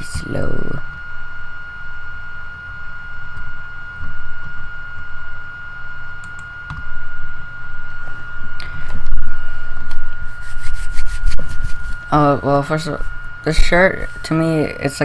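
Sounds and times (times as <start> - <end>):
steady high-pitched whine: 0.0 - 15.0.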